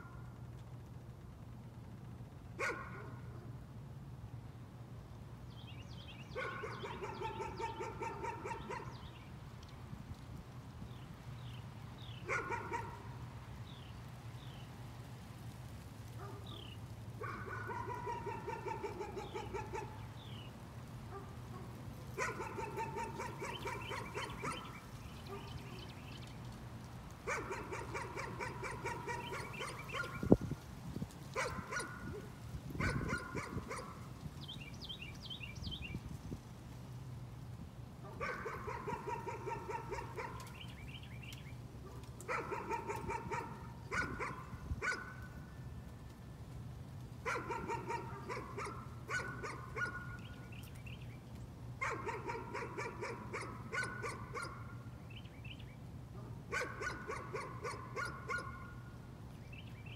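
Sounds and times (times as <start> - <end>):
dog barking: 2.6 - 3.2, 6.4 - 9.0, 12.3 - 13.1, 16.2 - 20.0, 21.1 - 25.8, 27.3 - 30.2, 31.4 - 34.0, 38.0 - 40.6, 41.8 - 45.3, 47.2 - 50.3, 51.8 - 54.7, 56.2 - 58.7.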